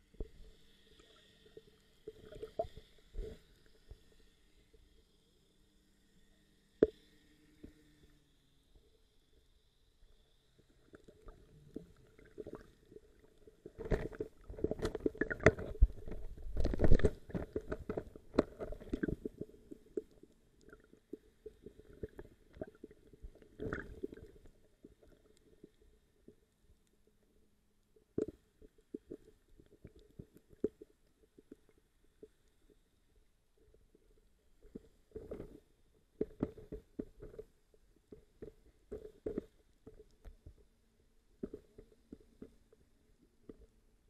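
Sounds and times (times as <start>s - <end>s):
faint steady hum: 0.0s - 44.0s
muffled underwater water movement: 0.0s - 44.0s.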